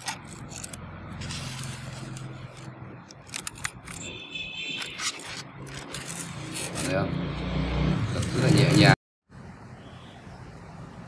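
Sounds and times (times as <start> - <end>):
polystyrene foam scraping and crackling: 0.0 - 7.0.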